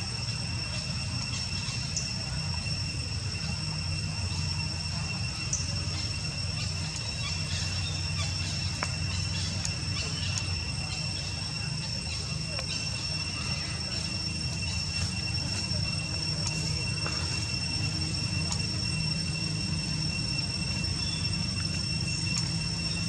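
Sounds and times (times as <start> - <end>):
insects droning: 0.0 - 23.0
faint clicks: 18.4 - 18.7, 21.6 - 22.5.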